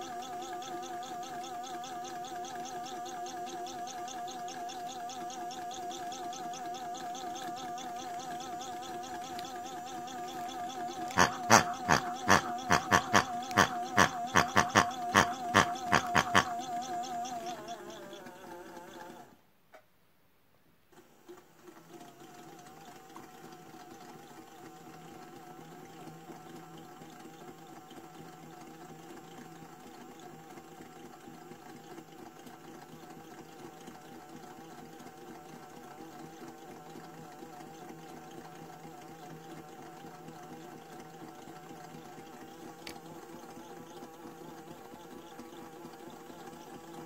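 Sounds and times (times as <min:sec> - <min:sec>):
small electric pump humming: 0:00.0 - 0:19.4, 0:20.9 - 0:47.0
water pumping through drain hose: 0:09.3 - 0:19.2.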